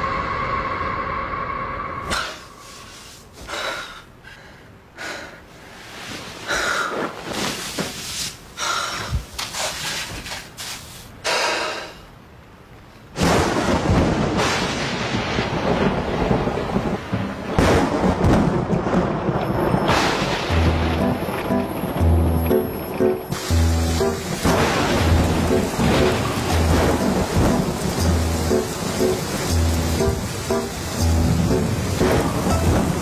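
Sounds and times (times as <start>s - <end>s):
rain downpour: 2.6s - 33.0s
thunder rumbling: 13.2s - 33.0s.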